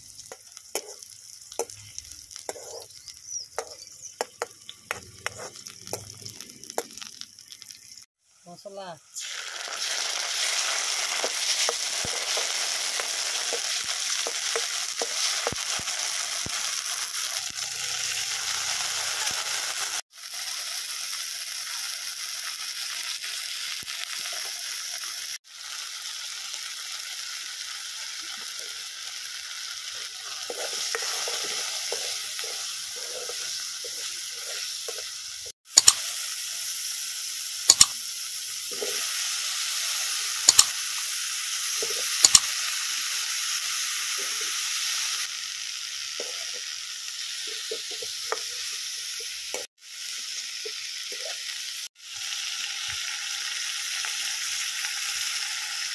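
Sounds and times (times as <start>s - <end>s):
onions sizzling in oil: 0.0s - 55.9s
metal spoon scraping pan: 0.8s - 1.0s, 2.4s - 2.9s, 4.9s - 6.1s, 30.3s - 35.1s
loud sharp clicks: 35.8s - 36.0s, 37.7s - 37.9s, 40.5s - 40.7s.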